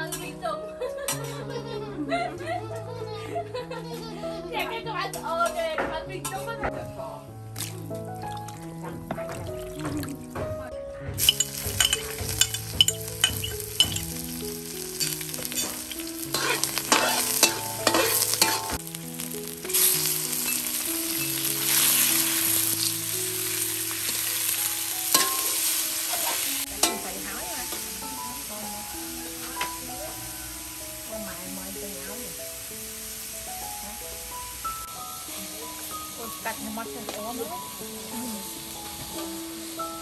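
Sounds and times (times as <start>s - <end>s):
food sizzling in hot oil: 7.4s - 10.4s, 11.2s - 40.0s
metal spatula scraping wok: 11.2s - 18.8s, 25.1s - 28.2s.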